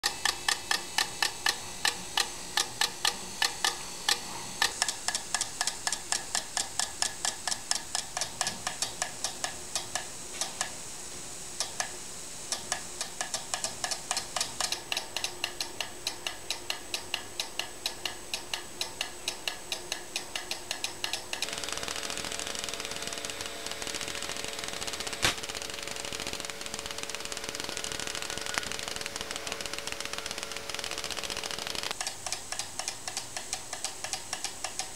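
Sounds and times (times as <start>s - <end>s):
steady machine hum: 0.0s - 34.9s.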